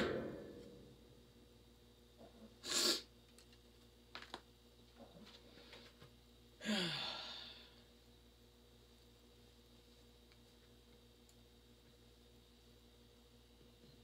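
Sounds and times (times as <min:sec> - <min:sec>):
woman sighing: 0:06.6 - 0:07.8.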